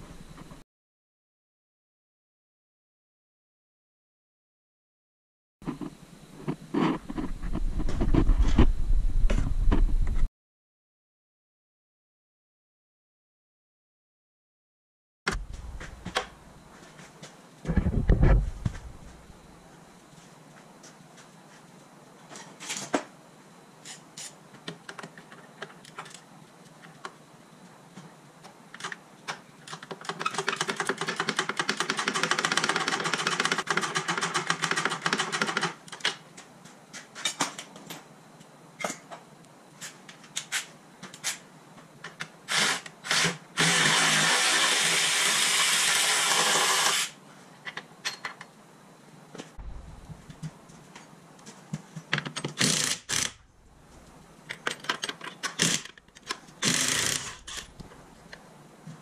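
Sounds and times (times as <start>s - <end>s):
hand-held power tool running: 42.5s - 47.2s, 52.6s - 53.4s, 56.6s - 57.8s.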